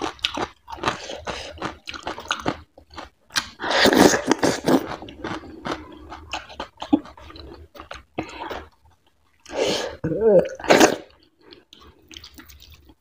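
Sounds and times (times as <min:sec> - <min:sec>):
close chewing: 0:00.0 - 0:09.5, 0:11.2 - 0:13.0.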